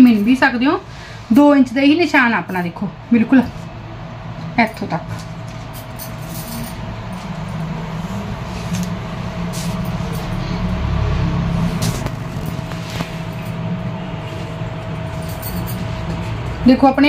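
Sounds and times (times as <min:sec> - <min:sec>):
vehicle engine rumble: 0:03.6 - 0:17.0.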